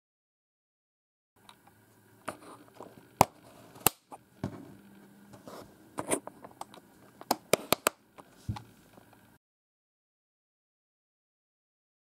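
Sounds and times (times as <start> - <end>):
plastic keyboard foot clicks: 6.0 - 8.7.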